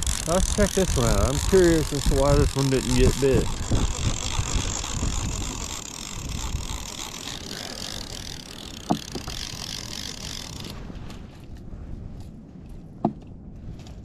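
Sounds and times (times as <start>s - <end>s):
fishing reel whirring: 0.0s - 11.2s.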